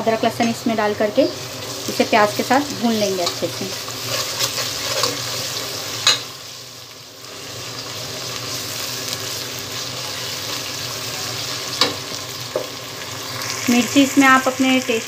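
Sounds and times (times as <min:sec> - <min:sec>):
food sizzling in hot oil: 0:00.0 - 0:15.0
steel spoon clinking on pan: 0:06.0 - 0:06.3.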